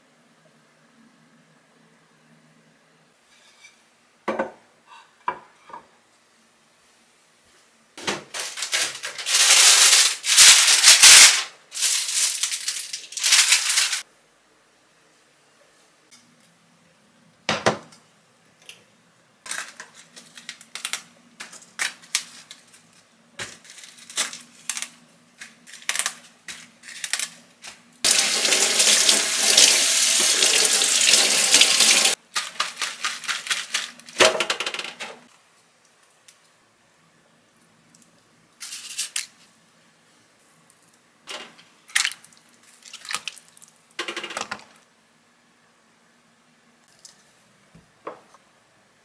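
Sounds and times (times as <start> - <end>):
leaves being handled: 8.3 - 14.0.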